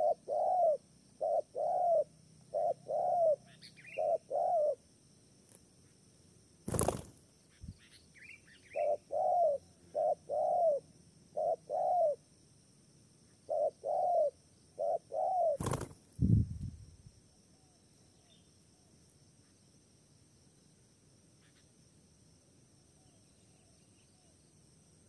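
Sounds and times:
dove cooing: 0.0 - 4.8, 8.7 - 12.2, 13.5 - 15.9
small bird chirping: 0.0 - 4.8, 6.6 - 12.2, 17.7 - 18.6, 21.4 - 21.8.

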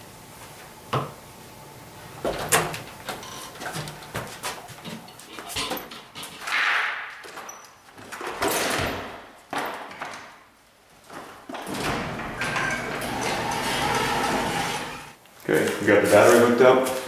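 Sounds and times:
garage door rolling up: 2.2 - 4.1, 11.5 - 15.2.

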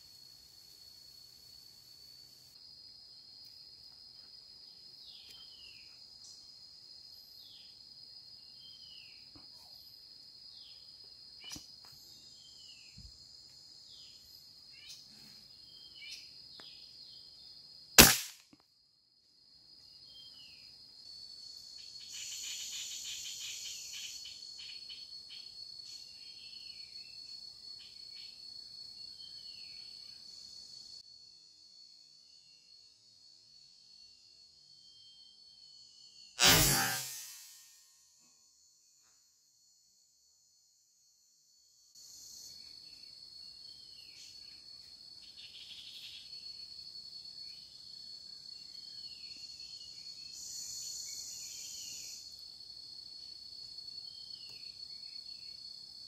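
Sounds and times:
insect whine: 0.0 - 18.4, 19.2 - 56.0
air rifle firing: 18.0 - 18.4, 36.4 - 37.6.

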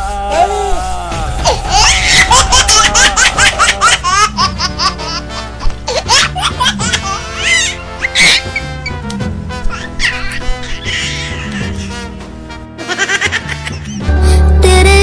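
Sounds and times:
high-pitched laughter: 1.4 - 5.2, 5.9 - 9.0, 9.7 - 12.0, 12.8 - 14.0.

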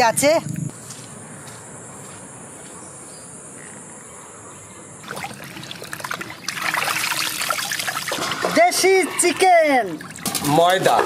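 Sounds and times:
water splashing in metal basin: 5.0 - 9.0, 9.9 - 11.0.

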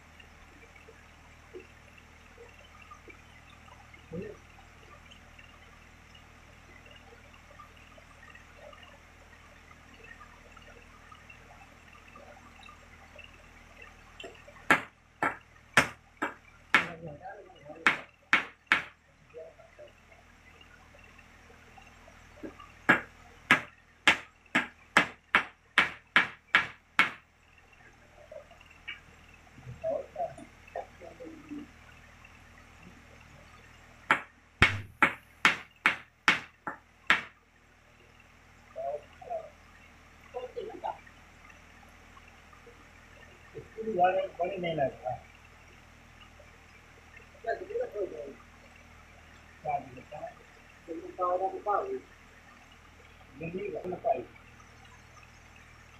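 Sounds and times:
hammer striking wood: 14.7 - 16.9, 17.9 - 18.9, 22.9 - 27.2, 34.1 - 37.3
hammer hitting nail into wood: 34.1 - 36.5.

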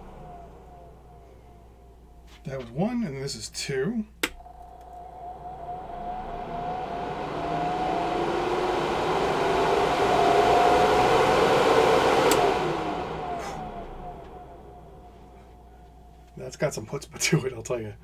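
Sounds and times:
exhaust fan whirring: 0.0 - 18.0
switch clicking: 4.2 - 4.4
rush of air: 4.4 - 15.8.

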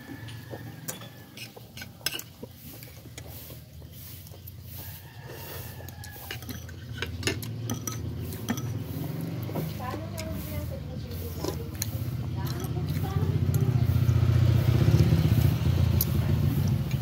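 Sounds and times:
cutlery clinking against plate: 0.8 - 2.5, 6.1 - 8.9.

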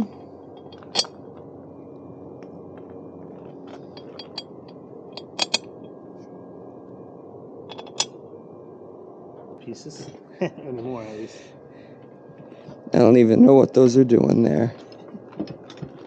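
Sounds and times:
faint background noise: 0.0 - 16.0
small metallic clicks and taps: 5.2 - 5.6.

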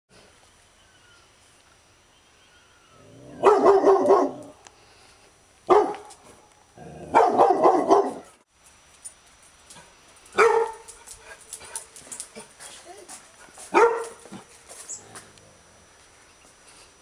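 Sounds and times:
dog barking: 3.4 - 4.6, 5.7 - 6.1, 7.1 - 8.4, 10.4 - 10.9, 13.7 - 14.4.

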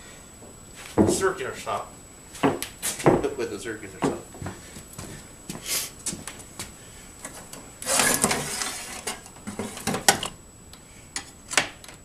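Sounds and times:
rustling scrape: 7.8 - 9.9.

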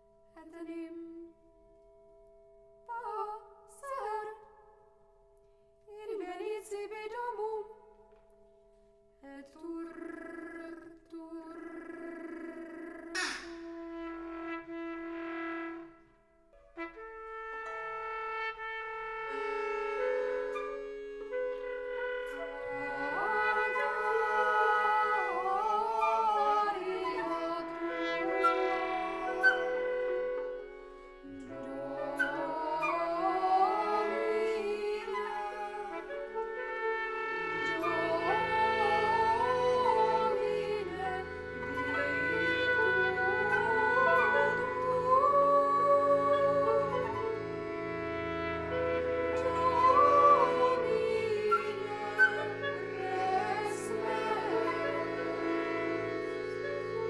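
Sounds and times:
held wind and brass notes: 13.2 - 57.0
instruments sustained chord: 17.0 - 57.0.

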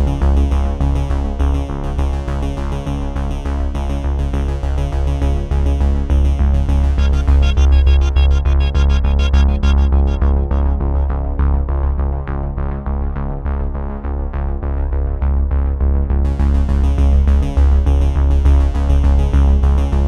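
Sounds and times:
synthesizer music: 6.8 - 11.8.

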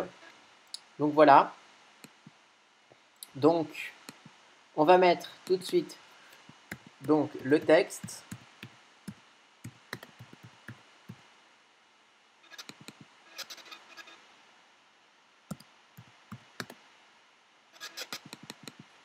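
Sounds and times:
keyboard typing clicks: 6.7 - 10.8, 15.5 - 16.8, 18.2 - 18.8.

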